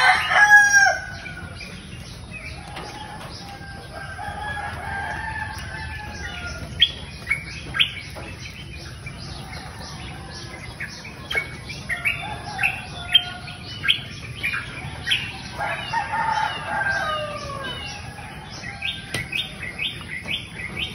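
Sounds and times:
small birds chirping: 0:00.0 - 0:20.9.

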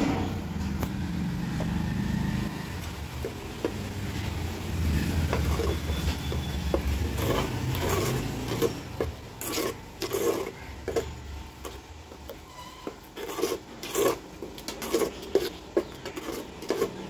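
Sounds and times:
spoon scraping metal pot: 0:02.7 - 0:17.0.

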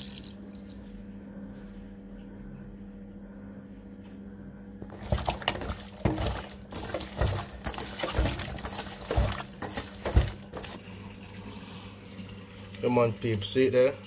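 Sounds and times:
wet squelching of mixing meat: 0:04.8 - 0:10.8.

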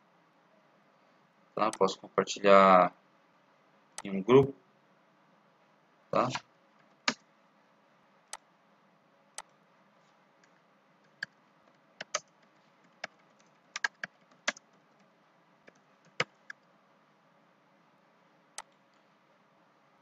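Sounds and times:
computer keyboard keystrokes: 0:11.1 - 0:15.0, 0:15.7 - 0:16.6.

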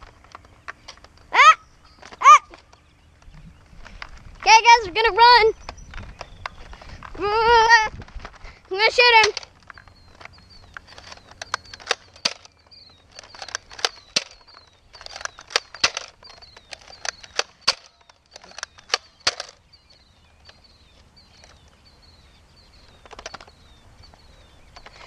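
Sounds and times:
toy dart blaster clicks and knocks: 0:08.0 - 0:19.6, 0:23.0 - 0:23.5.

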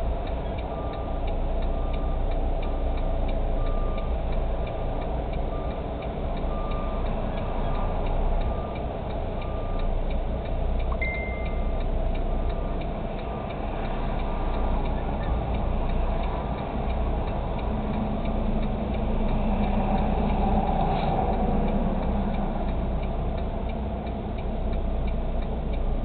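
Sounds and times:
diesel engine running at low speed: 0:00.0 - 0:26.0
steady ticking: 0:00.0 - 0:26.0
brief high tone: 0:10.9 - 0:11.7.

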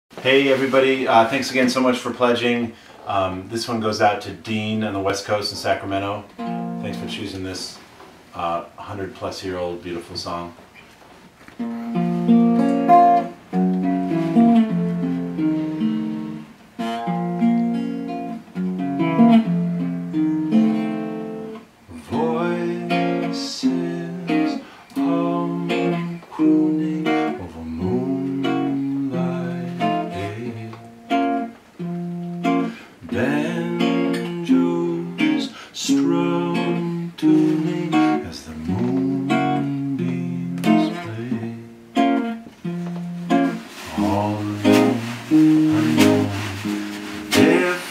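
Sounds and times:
strummed guitar: 0:00.2 - 0:07.8, 0:11.5 - 0:47.9
man singing: 0:21.9 - 0:31.0, 0:33.0 - 0:41.8, 0:43.5 - 0:47.9.

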